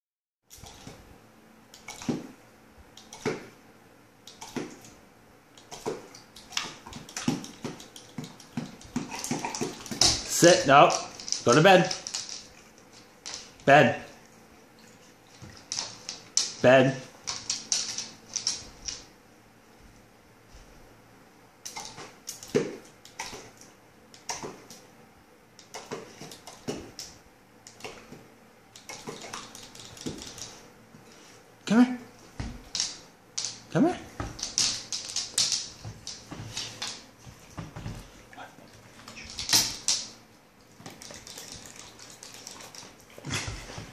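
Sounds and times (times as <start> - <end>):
dog licking and snapping: 1.7 - 2.3, 3.0 - 3.5, 4.3 - 5.0, 5.6 - 13.6, 21.6 - 24.8, 25.6 - 28.1, 28.7 - 30.6, 39.0 - 43.5.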